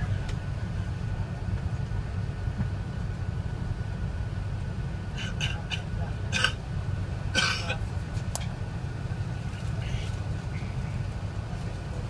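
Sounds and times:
aircraft cabin rumble: 0.0 - 12.0
faint steady whine: 0.0 - 12.0.

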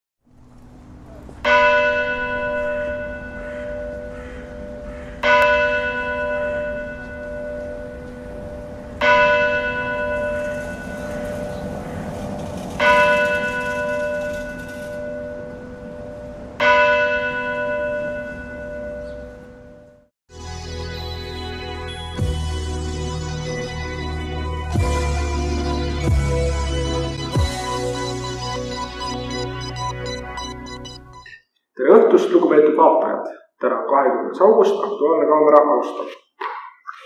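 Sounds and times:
large bell tolling: 1.4 - 20.0.

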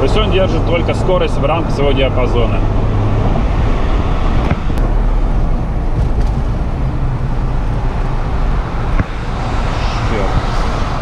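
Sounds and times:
road noise: 0.0 - 11.0
wind rushing: 2.5 - 11.0.

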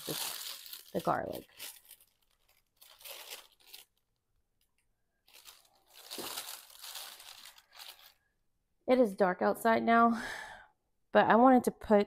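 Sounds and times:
packaging bags crinkling: 0.0 - 8.2.

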